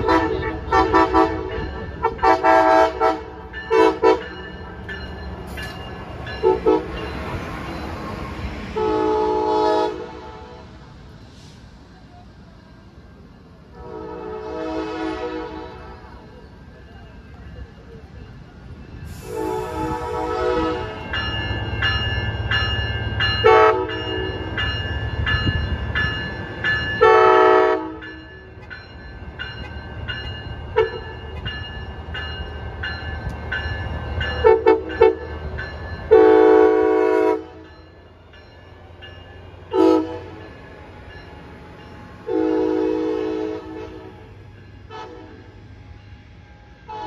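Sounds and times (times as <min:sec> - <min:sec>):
locomotive air horn blasts: 0:00.0 - 0:04.2, 0:06.4 - 0:06.9, 0:08.8 - 0:10.8, 0:13.7 - 0:16.2, 0:19.2 - 0:21.0, 0:23.4 - 0:24.0, 0:27.0 - 0:28.0, 0:34.4 - 0:35.2, 0:36.1 - 0:37.6, 0:39.7 - 0:40.4, 0:42.2 - 0:44.3, 0:44.9 - 0:45.5
train rumble: 0:00.0 - 0:47.0
bell ringing: 0:03.5 - 0:08.2, 0:21.0 - 0:27.3.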